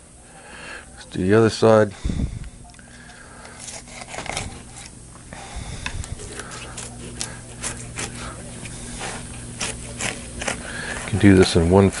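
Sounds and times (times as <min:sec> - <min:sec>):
steady low hum: 0:00.0 - 0:12.0
fillet knife scraping on board: 0:03.6 - 0:04.9, 0:06.4 - 0:12.0.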